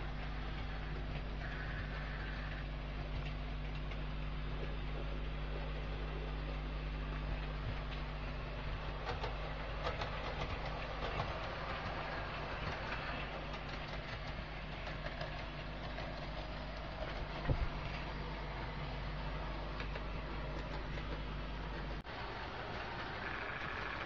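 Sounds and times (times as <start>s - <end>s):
model train motor hum: 0.0s - 24.0s
wheels clicking over rail joints: 7.2s - 24.0s.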